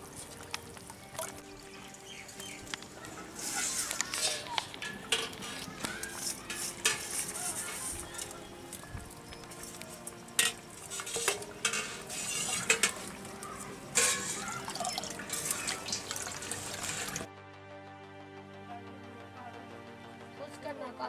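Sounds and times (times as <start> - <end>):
curry bubbling in pan: 0.0 - 17.3
background music: 0.0 - 21.0
bowl and spoon clinking: 10.4 - 13.2, 13.9 - 17.3.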